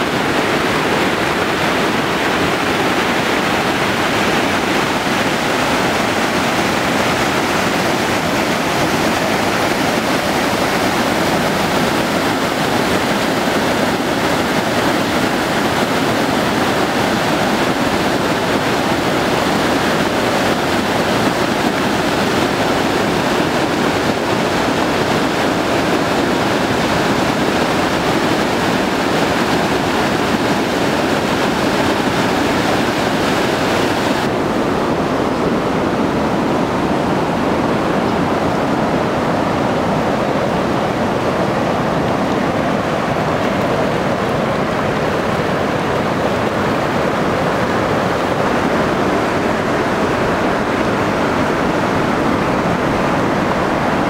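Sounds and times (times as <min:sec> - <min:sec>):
rushing river water: 0:00.0 - 0:54.0.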